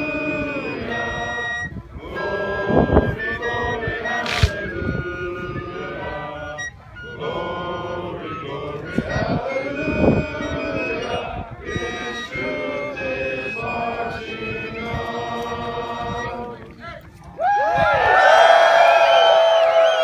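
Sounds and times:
men singing without instruments: 0:02.1 - 0:16.6.

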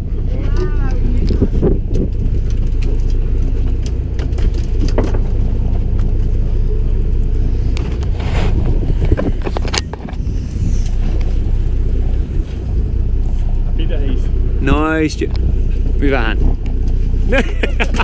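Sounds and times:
boat engine rumbling: 0:00.0 - 0:18.0
knocks and clicks of gear: 0:00.5 - 0:06.5, 0:07.7 - 0:10.2.

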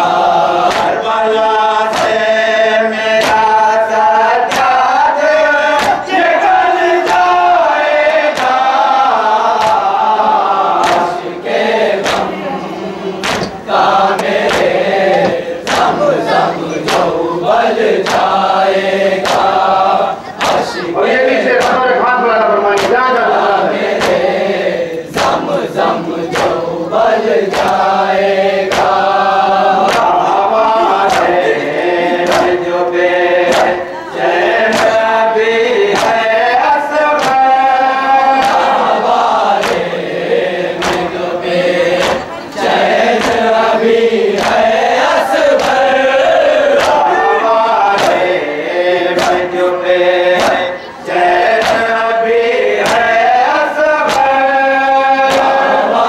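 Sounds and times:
men chanting in unison: 0:00.0 - 0:56.0
hands striking chests: 0:12.0 - 0:12.4, 0:13.2 - 0:16.1.

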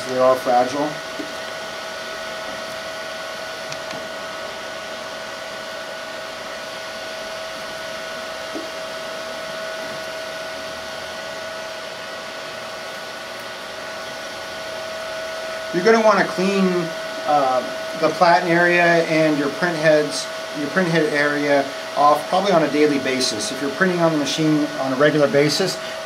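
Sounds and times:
constant hum tone: 0:00.0 - 0:26.0
printer fan whir: 0:00.0 - 0:26.0.

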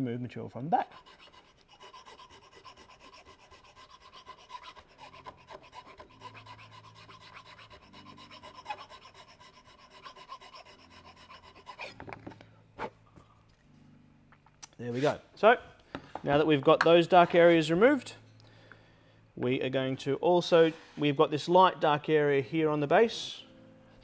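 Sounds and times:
file rasping wood: 0:00.9 - 0:12.2.

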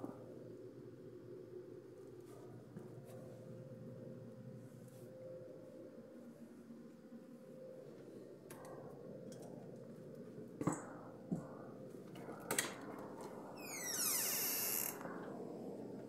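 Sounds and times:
door scraping hiss: 0:13.6 - 0:15.0.

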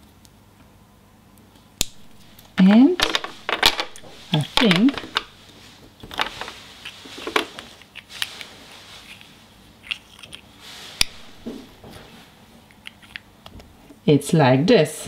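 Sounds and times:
plastic snap: 0:01.8 - 0:04.0.

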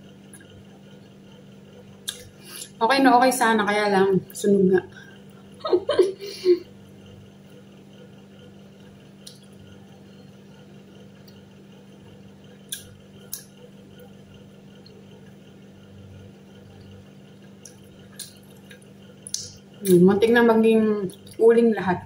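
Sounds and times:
chewing pizza: 0:07.4 - 0:20.0.

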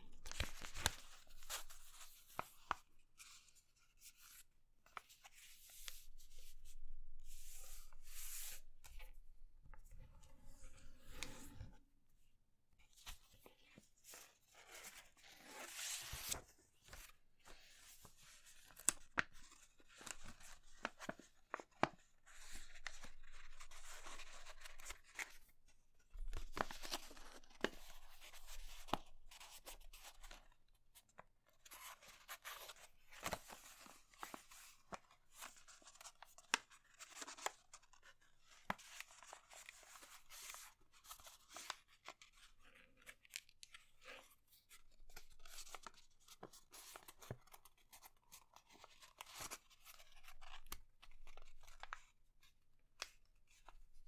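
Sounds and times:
paper rustling and sliding: 0:07.4 - 0:08.6, 0:10.2 - 0:11.8.

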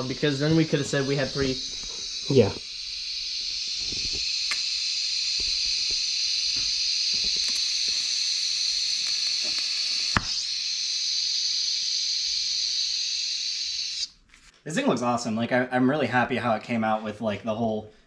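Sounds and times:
welding arc crackle: 0:00.0 - 0:14.1
welding arc hissing: 0:00.0 - 0:14.1.

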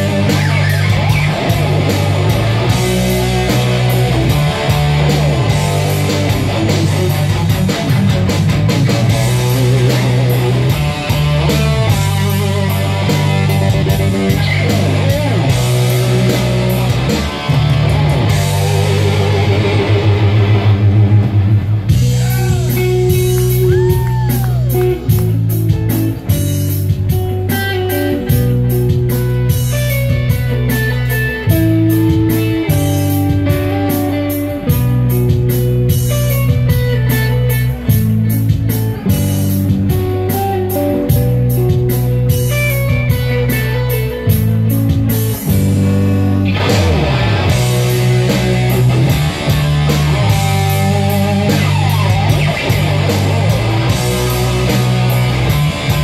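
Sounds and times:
drum beat: 0:00.0 - 0:19.9, 0:21.9 - 0:30.9, 0:44.3 - 0:45.8, 0:46.5 - 0:56.0
electric guitar solo: 0:00.0 - 0:56.0.

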